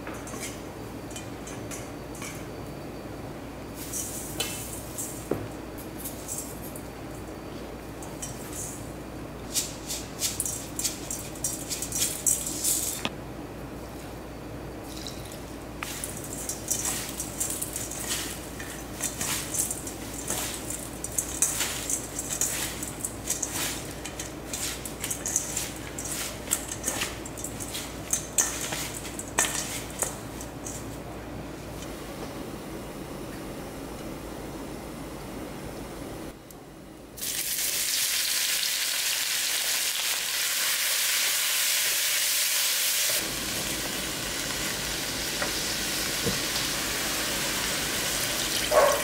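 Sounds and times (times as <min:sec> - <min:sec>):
leaves rustling in metal bowl: 0:14.9 - 0:31.0.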